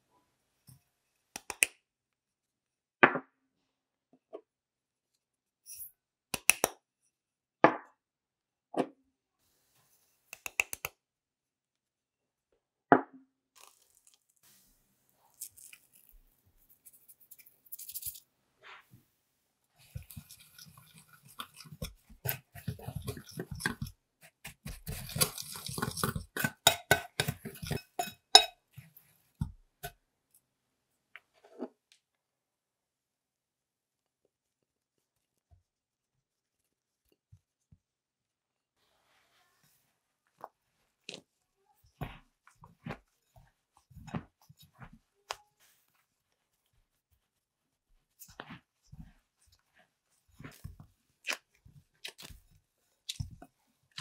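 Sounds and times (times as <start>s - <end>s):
bowls tapping and clinking: 19.8s - 23.9s, 24.5s - 28.8s
whisk scraping against glass bowl: 19.8s - 28.6s.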